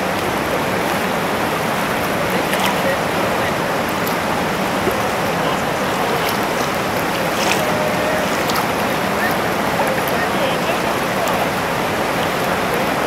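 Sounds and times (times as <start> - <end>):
whitewater rapids roaring: 0.0 - 13.0.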